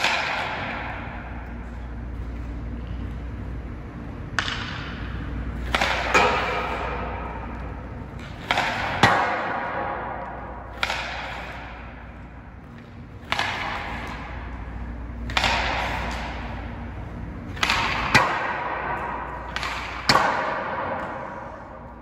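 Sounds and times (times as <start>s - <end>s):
hall echo: 0.0s - 22.0s
hockey puck shot cracks: 4.4s - 7.6s, 8.2s - 11.9s, 17.5s - 21.4s.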